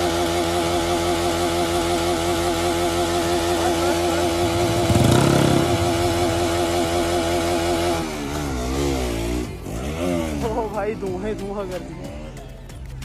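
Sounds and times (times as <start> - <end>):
motorcycle engine at high revs: 0.0 - 11.3.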